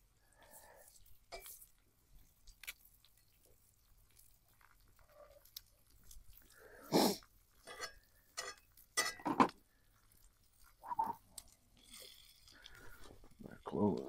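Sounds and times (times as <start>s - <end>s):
eggs frying: 0.0s - 14.0s
metal spatula scraping skillet: 7.6s - 9.5s.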